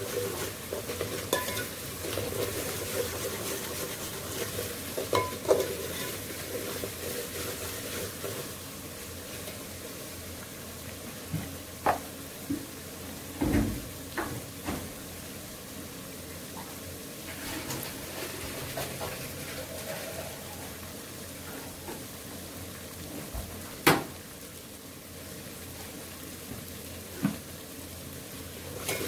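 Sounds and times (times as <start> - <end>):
masala sizzling in oil: 0.0 - 29.0
ladle knocking against pot: 1.3 - 1.6.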